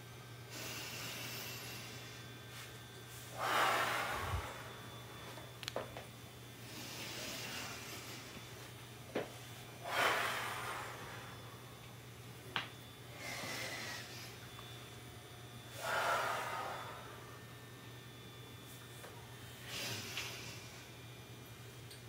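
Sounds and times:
woman breathing deeply: 0:00.5 - 0:05.5, 0:06.6 - 0:08.6, 0:09.8 - 0:11.8, 0:13.0 - 0:14.7, 0:15.6 - 0:17.5, 0:19.5 - 0:21.0.

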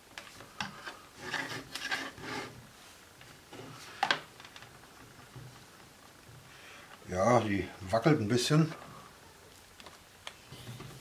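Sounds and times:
rubbing and rustling of plastic: 0:00.0 - 0:07.5.

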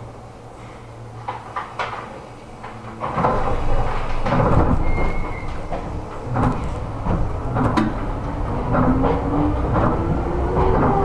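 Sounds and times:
train car rumbling: 0:00.0 - 0:11.0
traction motor hum rising: 0:02.4 - 0:11.0
sharp clunks: 0:03.0 - 0:11.0.

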